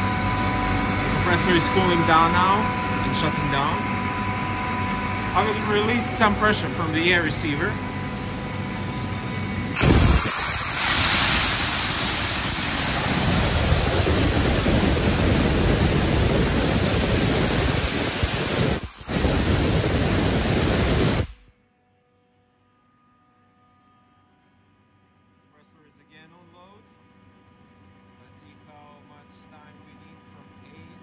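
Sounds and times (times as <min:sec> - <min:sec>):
compressed air hissing from valve: 0:09.8 - 0:21.4.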